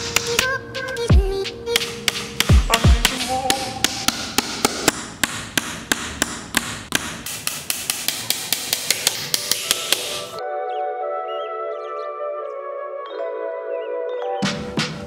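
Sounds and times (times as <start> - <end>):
background music: 0.0 - 5.0, 8.3 - 15.0
hammer tapping nails into wood: 1.8 - 10.4.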